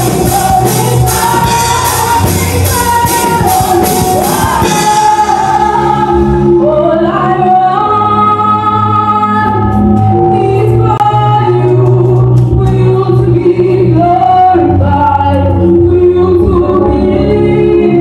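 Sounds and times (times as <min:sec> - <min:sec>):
drum kit: 0:00.0 - 0:06.7, 0:09.5 - 0:13.5
gospel choir singing: 0:00.0 - 0:11.0
woman singing lead: 0:00.0 - 0:18.0.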